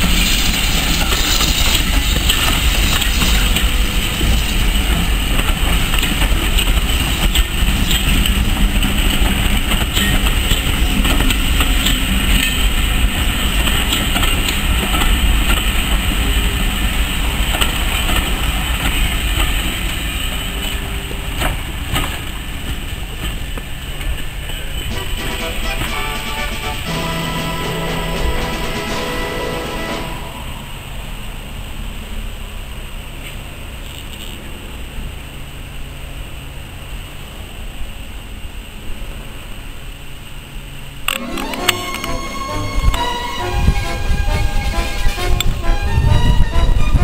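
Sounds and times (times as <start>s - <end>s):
wheels clicking over rail joints: 0.0s - 26.3s
train rumbling past: 0.0s - 47.0s.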